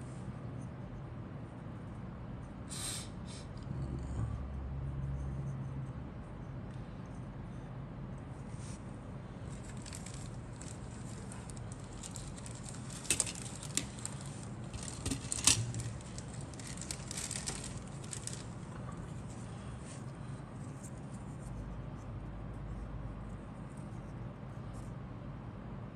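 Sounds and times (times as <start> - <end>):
plastic parts clicking and rattling: 9.5 - 19.0.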